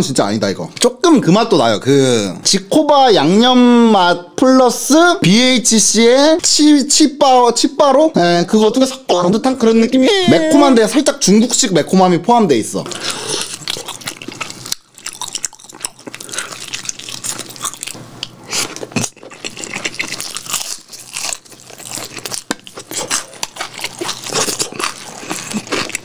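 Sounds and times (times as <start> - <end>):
chewing crunchy fried food: 12.8 - 26.0
wet mouth sounds: 12.9 - 26.0.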